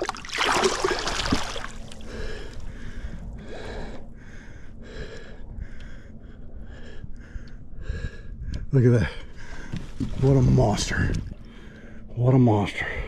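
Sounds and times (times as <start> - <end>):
water splashing: 0.0 - 2.2
person breathing hard: 2.0 - 10.0.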